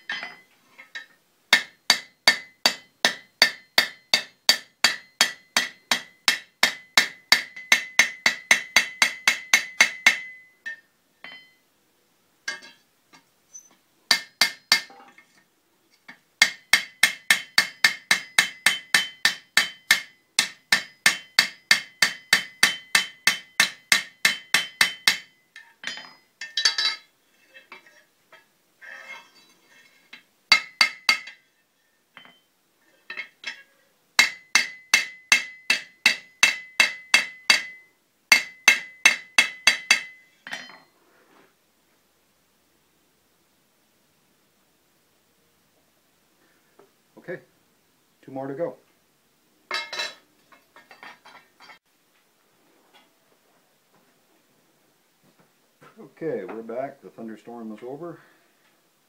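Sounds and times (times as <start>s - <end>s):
hammer striking metal on anvil: 1.0s - 11.6s, 14.1s - 15.0s, 16.4s - 27.1s, 30.5s - 31.5s, 32.2s - 32.5s, 34.2s - 40.9s, 49.7s - 50.2s
anvil ringing: 1.5s - 11.6s, 16.4s - 27.1s, 34.2s - 40.9s.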